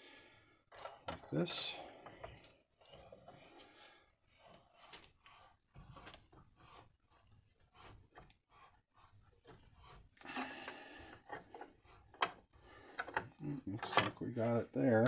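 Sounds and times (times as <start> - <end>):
handling clicks and knocks: 11.2 - 15.0.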